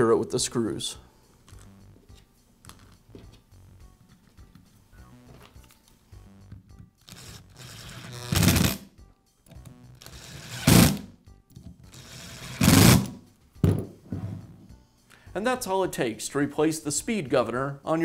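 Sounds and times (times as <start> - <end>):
power screwdriver driving screws: 7.0 - 8.8, 10.0 - 11.0, 11.9 - 13.1.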